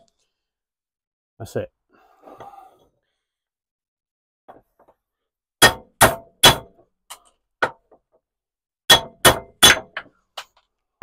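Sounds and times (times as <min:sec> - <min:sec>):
hammer striking metal: 0:05.6 - 0:06.7, 0:08.9 - 0:10.1.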